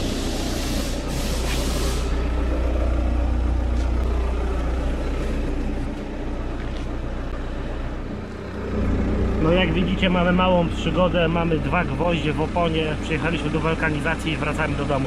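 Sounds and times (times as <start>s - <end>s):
compressed air hissing: 0.0s - 2.3s
low machine drone: 0.0s - 15.0s.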